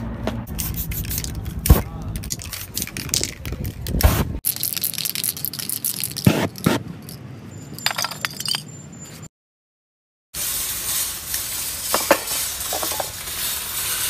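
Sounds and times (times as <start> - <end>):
spray can hissing: 0.5 - 1.4
spray cans clicking and knocking: 0.6 - 7.2, 11.9 - 13.2
ringing clinks: 7.0 - 9.1.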